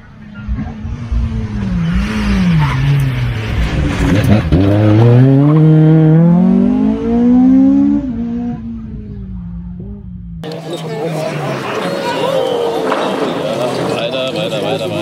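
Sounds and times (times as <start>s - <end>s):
rally car engine revving: 0.0s - 11.7s.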